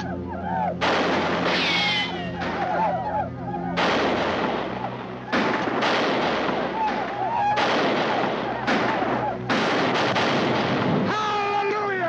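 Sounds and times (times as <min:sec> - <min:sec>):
rifle shots echoing: 0:00.8 - 0:02.8, 0:03.8 - 0:11.3.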